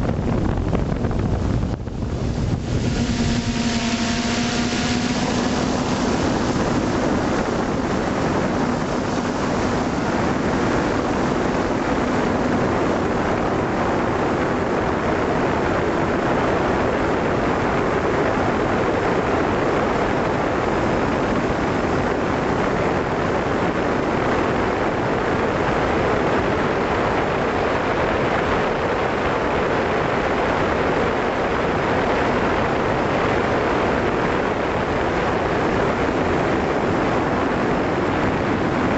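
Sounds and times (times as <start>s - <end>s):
drone propellers: 0.0s - 26.5s
wind buffeting microphone: 0.0s - 38.9s.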